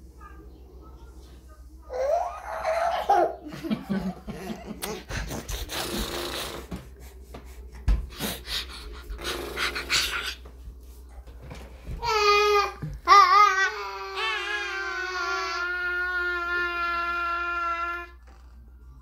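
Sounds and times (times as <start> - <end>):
toddler laughing: 1.9 - 6.0, 9.6 - 10.5.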